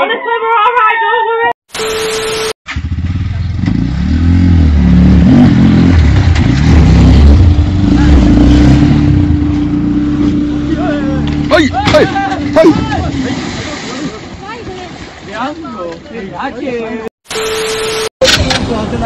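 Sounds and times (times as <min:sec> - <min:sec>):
motor tricycle engine revving: 0:02.7 - 0:11.6
voices: 0:09.1 - 0:17.1.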